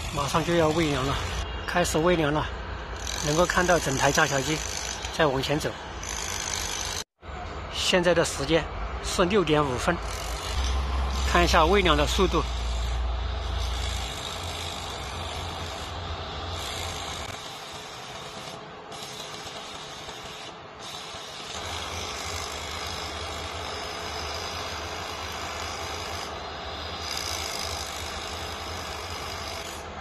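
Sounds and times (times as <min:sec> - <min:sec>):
low engine rumble: 0:10.4 - 0:16.6.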